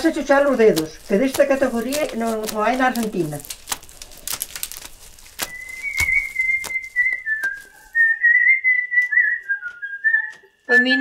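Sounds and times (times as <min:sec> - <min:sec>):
kernels rubbed off a corn cob: 0:00.0 - 0:08.1
person whistling a tune: 0:05.5 - 0:10.6.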